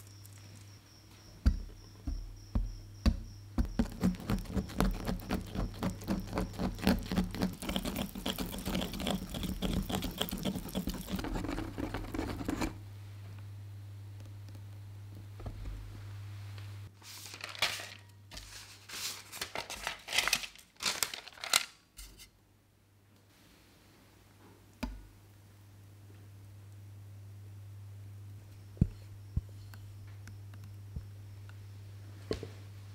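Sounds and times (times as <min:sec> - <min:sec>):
low steady hum: 0:00.0 - 0:17.0, 0:22.0 - 0:32.9
short scrapes and knocks: 0:03.6 - 0:12.8
whisk stirring powder in glass bowl: 0:03.8 - 0:12.7.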